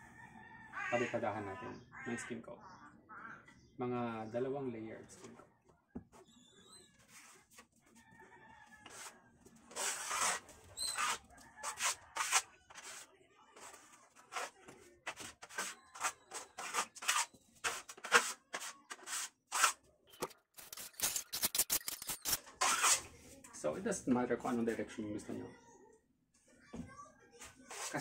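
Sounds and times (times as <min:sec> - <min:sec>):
trowel scraping on wall: 0:08.8 - 0:23.1, 0:27.6 - 0:28.0.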